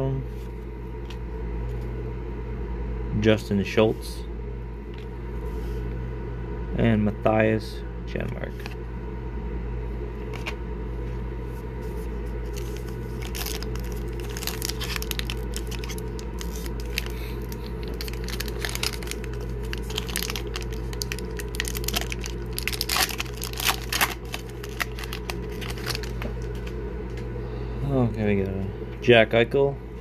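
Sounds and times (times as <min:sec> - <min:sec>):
foil wrapper tearing and crinkling: 0:12.5 - 0:26.5.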